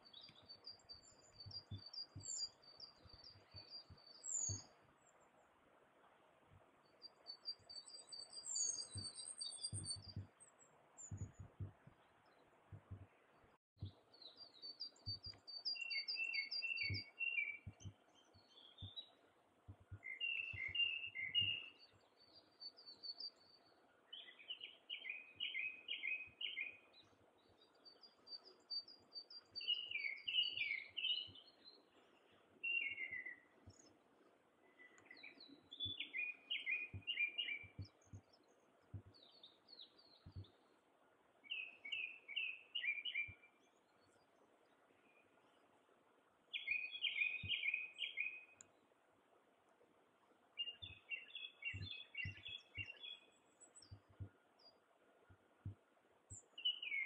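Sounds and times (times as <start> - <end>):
songbirds singing: 0.0 - 57.0
soft low thumps: 8.8 - 10.4, 11.0 - 13.2, 13.8 - 14.1, 14.9 - 15.4, 16.9 - 18.1, 18.7 - 21.6, 36.9 - 39.3, 40.1 - 40.7, 51.6 - 52.9, 53.8 - 54.4, 55.3 - 55.9.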